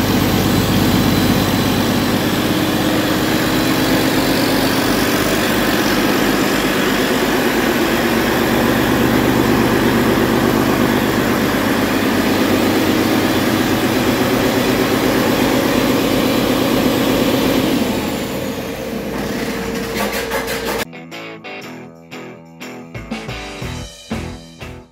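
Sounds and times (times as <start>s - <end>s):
diesel engine running: 0.0s - 20.8s
music: 20.9s - 24.9s.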